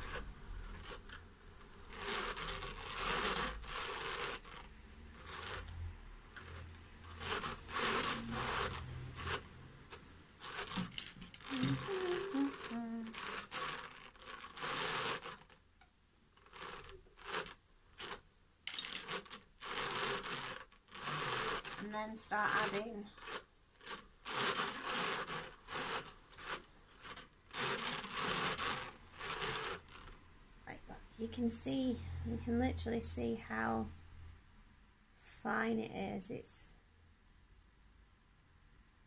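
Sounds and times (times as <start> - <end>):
drum carder raking wool: 0.0 - 15.6, 16.4 - 18.2, 18.9 - 30.2.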